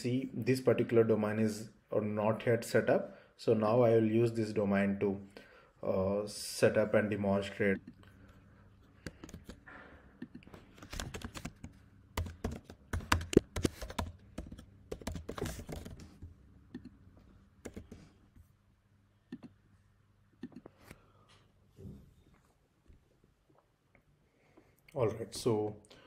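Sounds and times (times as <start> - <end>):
computer keyboard typing: 9.0 - 9.6, 10.2 - 16.2, 17.6 - 18.0.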